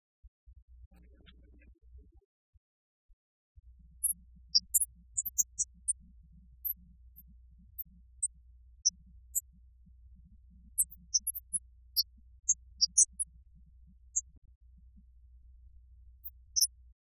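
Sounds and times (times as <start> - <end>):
steady low hum: 3.6 - 16.9
high-pitched digital chirps: 4.6 - 5.7, 10.8 - 11.6, 12.8 - 13.2.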